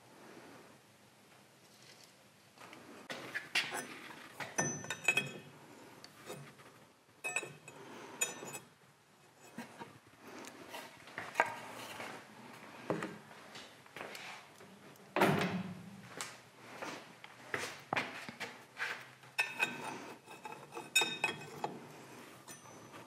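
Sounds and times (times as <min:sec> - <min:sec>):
hand tools clinking on metal: 0:03.7 - 0:05.4, 0:07.2 - 0:08.6, 0:19.4 - 0:21.8, 0:22.4 - 0:23.0.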